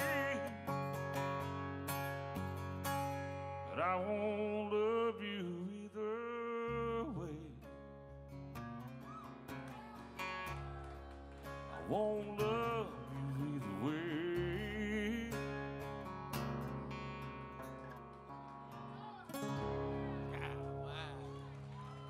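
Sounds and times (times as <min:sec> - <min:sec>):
man singing: 0:00.0 - 0:01.2, 0:03.6 - 0:07.9, 0:11.7 - 0:16.1
acoustic guitars playing: 0:00.0 - 0:22.0.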